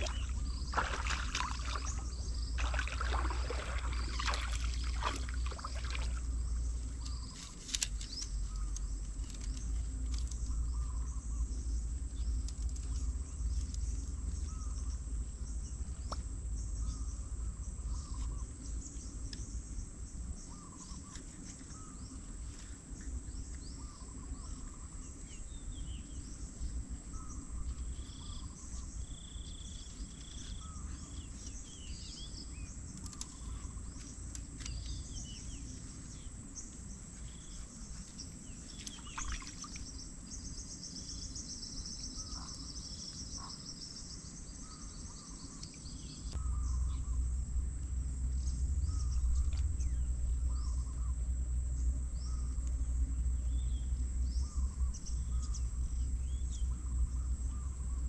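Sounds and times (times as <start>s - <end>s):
birds chirping: 0.0s - 22.2s, 22.9s - 58.0s
high insect whine: 0.0s - 58.0s
low rumble: 46.3s - 58.0s.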